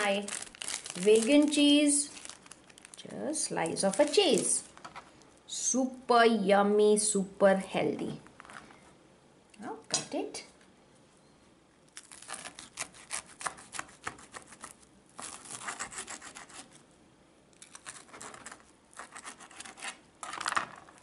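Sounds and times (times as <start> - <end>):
knife sawing through crusty bread: 12.2 - 16.7.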